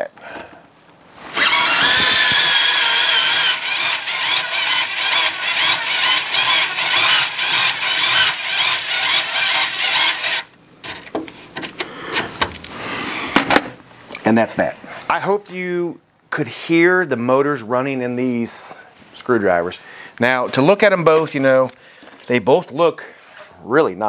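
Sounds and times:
electric screwdriver whining: 1.3 - 10.5.

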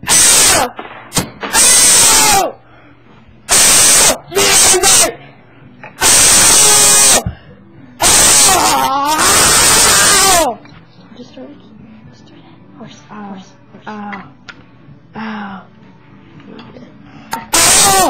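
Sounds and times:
person growling and shrieking: 0.0 - 0.7, 1.5 - 2.6, 3.5 - 5.2, 6.0 - 7.2, 8.0 - 10.6, 17.3 - 18.0.

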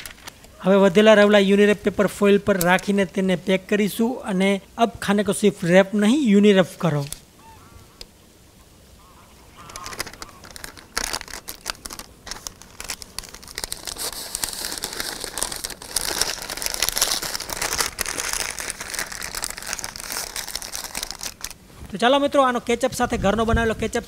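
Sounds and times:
paper wrapping crinkling: 0.0 - 0.6, 6.8 - 7.2, 9.6 - 21.6.

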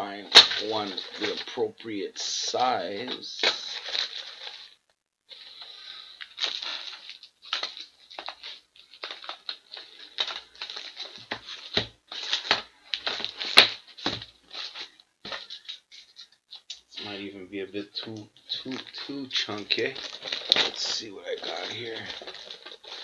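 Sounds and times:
plastic packaging crinkling: 0.0 - 23.0.

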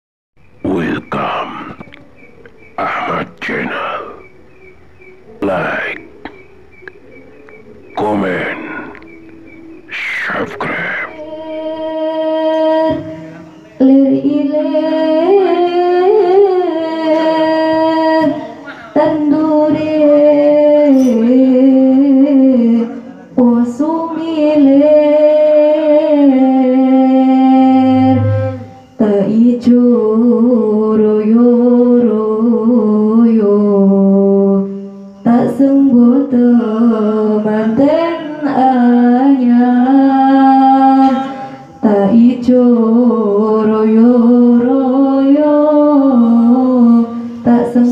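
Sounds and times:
woman singing devotional song: 11.1 - 47.9.

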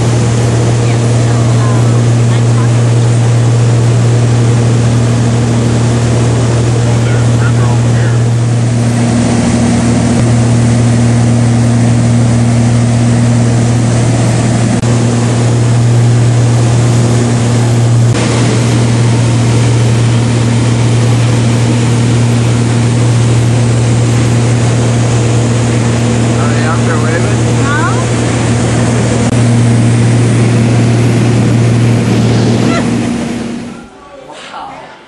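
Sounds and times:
small plane engine droning: 0.0 - 35.0.

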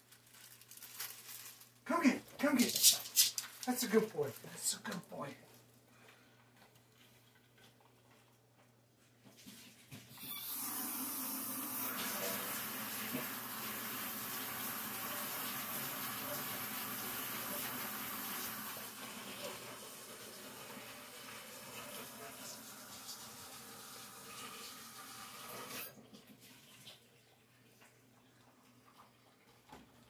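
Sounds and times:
tap water running into sink: 10.3 - 28.0.

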